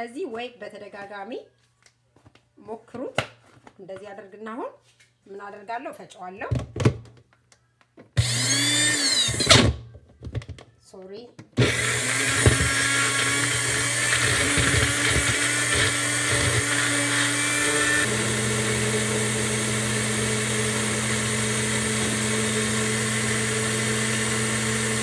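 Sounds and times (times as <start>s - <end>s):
blender grinding potato: 8.2s - 9.8s, 11.6s - 25.0s.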